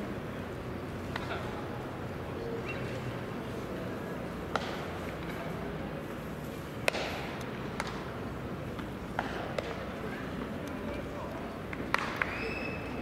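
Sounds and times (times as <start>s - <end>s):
background murmur: 0.0s - 13.0s
baseball cracks: 4.5s - 5.3s, 6.8s - 8.1s, 8.8s - 9.9s, 11.7s - 12.5s.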